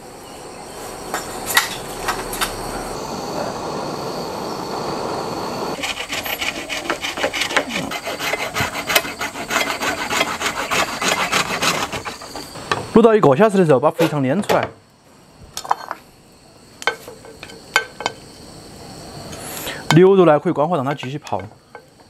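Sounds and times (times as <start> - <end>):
steady hiss: 0.0 - 22.0
blade scraping bamboo: 5.8 - 12.6.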